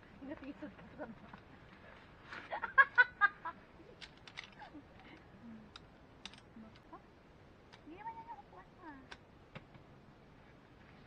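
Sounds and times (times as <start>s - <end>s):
camping gear clicks and rustles: 0.3s - 2.5s, 4.0s - 6.9s.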